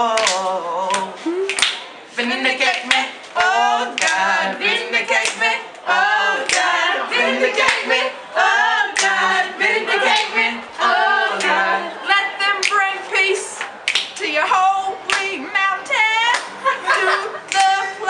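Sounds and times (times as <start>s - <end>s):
voices singing a capella: 0.0s - 18.0s
sharp hand claps or snaps: 0.2s - 1.9s, 2.7s - 4.2s, 12.6s - 12.8s, 13.6s - 14.2s.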